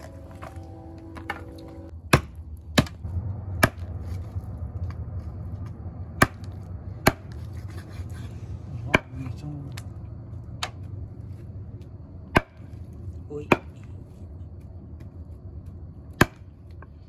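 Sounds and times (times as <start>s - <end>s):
cleaver chopping on wooden block: 2.1s - 3.0s, 16.2s - 16.4s.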